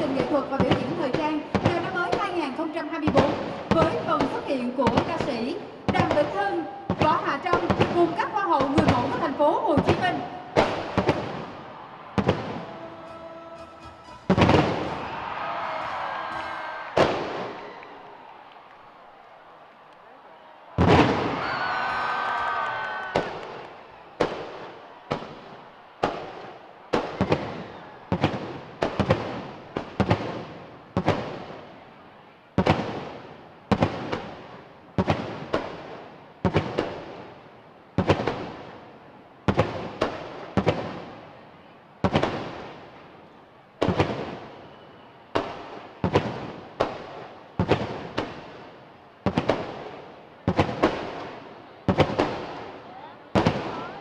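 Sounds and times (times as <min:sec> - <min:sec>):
fireworks shells bursting: 0:12.2 - 0:18.1.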